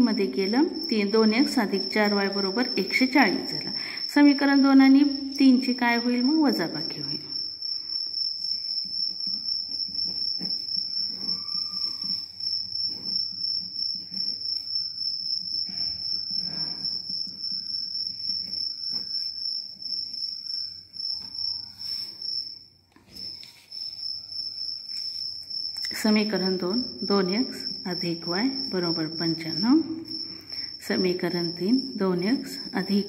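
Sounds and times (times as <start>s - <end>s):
insect trilling: 0.0s - 33.0s
pen scratching on paper: 8.6s - 14.6s.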